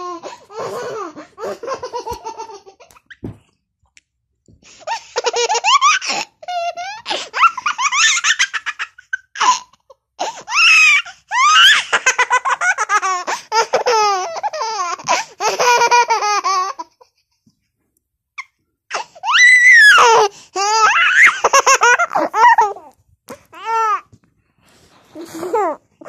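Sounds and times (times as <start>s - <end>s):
baby giggling: 0.8s - 3.2s, 20.0s - 22.9s.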